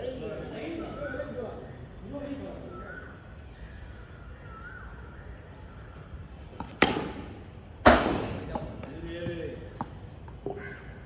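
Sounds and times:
cricket bat striking ball: 6.6 - 8.8.

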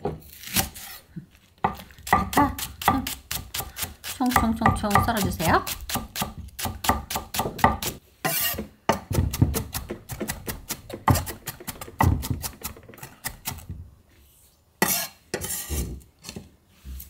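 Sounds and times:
knife scraping across board: 8.2 - 8.7, 14.8 - 17.0.

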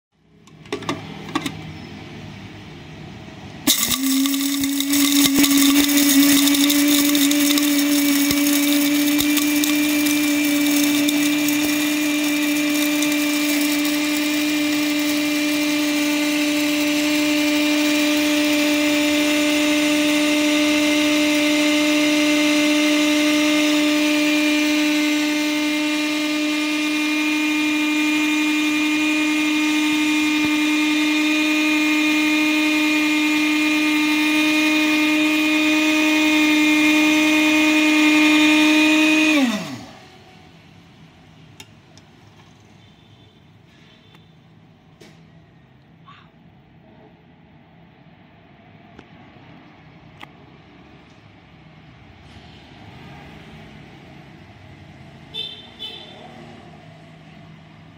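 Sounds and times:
beans rattling in grinder: 3.7 - 40.0
electric grinder motor running: 3.7 - 40.4.

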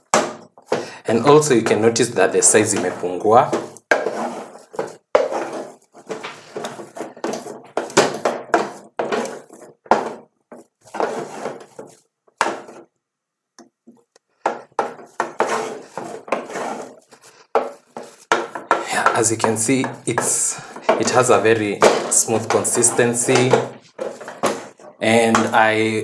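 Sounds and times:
wooden spoon scraping a pot: 0.0 - 12.9, 13.8 - 26.0.

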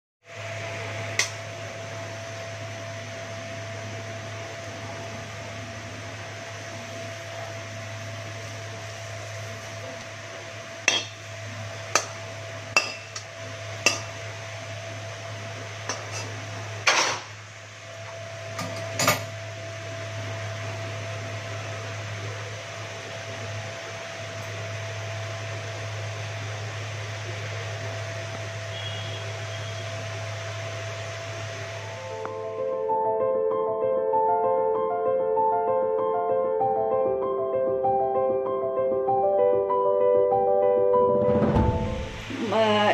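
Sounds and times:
low hum with thin whine: 0.3 - 33.8, 41.0 - 42.9
utensil clinking against bowl: 10.9 - 11.2.

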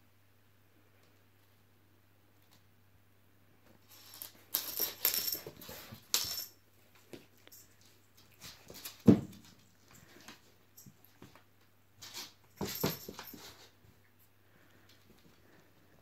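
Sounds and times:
heavy thump on wooden floor: 9.0 - 9.4.

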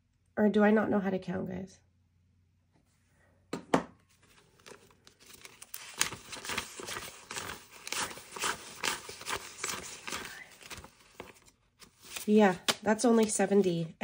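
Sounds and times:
banknotes being flipped by hand: 4.1 - 13.7.

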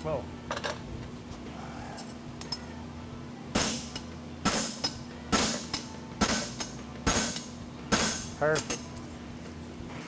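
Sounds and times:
hammer striking horseshoe on anvil: 3.5 - 8.8.

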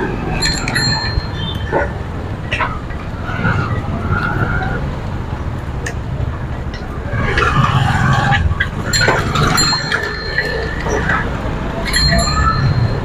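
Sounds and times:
road and traffic noise: 0.0 - 13.0
wind buffeting microphone: 0.0 - 13.0
high ringing tones: 0.2 - 1.9, 8.9 - 13.0.

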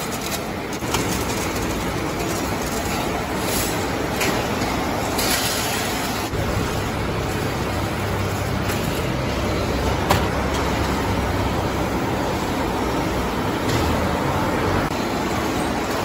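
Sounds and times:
machinery running steadily: 0.0 - 16.0.

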